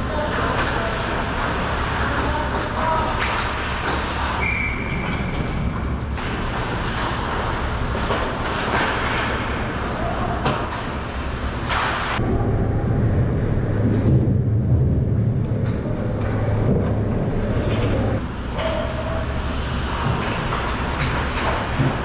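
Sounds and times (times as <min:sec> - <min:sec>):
low rumble: 0:12.2 - 0:18.4.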